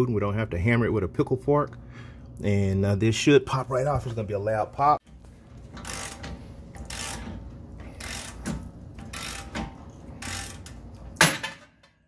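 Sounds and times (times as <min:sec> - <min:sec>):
hand ratchet clicking: 0:05.6 - 0:11.3.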